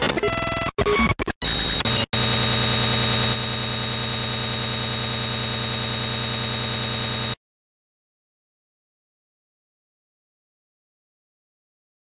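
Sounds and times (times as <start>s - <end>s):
electronic buzzing drone: 0.2s - 7.4s
high steady whine: 1.0s - 7.4s.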